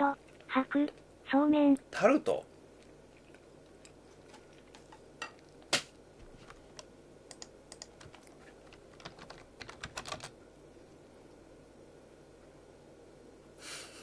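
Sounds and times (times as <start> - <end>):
typing on computer keyboard: 7.3 - 10.3.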